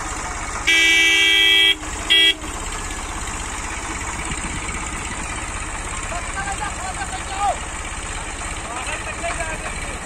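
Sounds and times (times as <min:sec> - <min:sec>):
tractor diesel engine running: 0:00.0 - 0:10.0
vehicle horn: 0:00.6 - 0:02.5.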